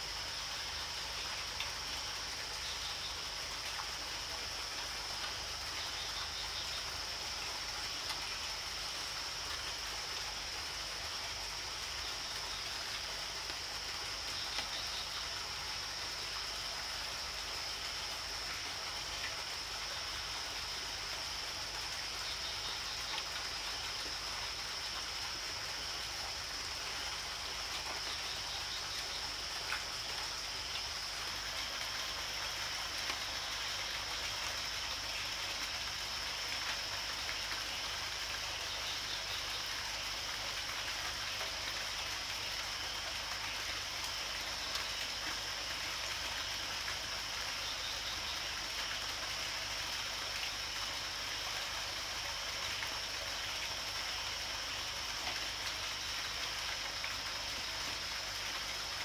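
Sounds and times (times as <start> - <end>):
high-pitched insect hum: 0.0 - 40.2
constant hiss: 0.0 - 59.0.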